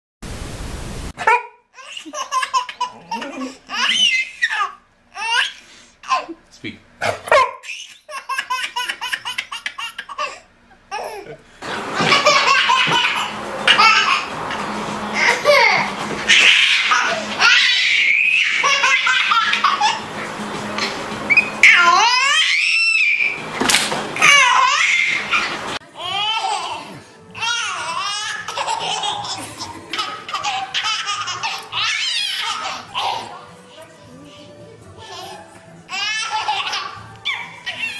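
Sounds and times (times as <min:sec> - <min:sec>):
baby laughing: 0:01.8 - 0:06.4, 0:07.6 - 0:23.4, 0:24.2 - 0:33.4, 0:35.0 - 0:37.9
background music: 0:32.6 - 0:37.9.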